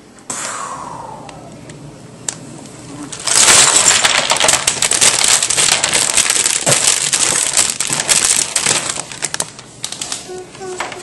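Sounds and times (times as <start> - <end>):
plastic bricks clattering: 3.2 - 9.5.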